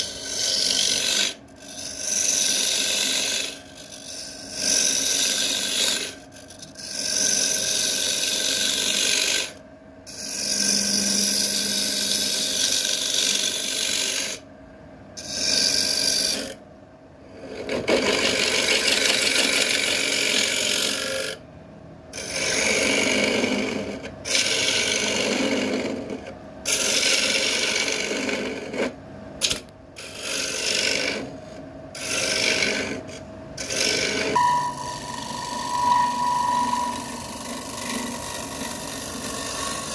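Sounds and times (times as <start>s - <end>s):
lathe tool rasping wood: 0.1s - 4.0s, 33.7s - 39.9s.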